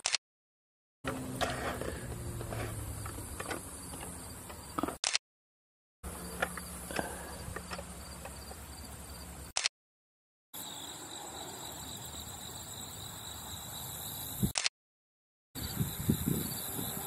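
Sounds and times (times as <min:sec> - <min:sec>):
sharp click: 0:00.0 - 0:00.2, 0:04.8 - 0:05.2, 0:09.5 - 0:09.7, 0:14.5 - 0:14.7
insects chirring: 0:02.2 - 0:04.8, 0:06.1 - 0:09.5, 0:10.6 - 0:14.6, 0:15.6 - 0:17.0
high-pitched insect drone: 0:10.6 - 0:14.5, 0:15.6 - 0:17.0.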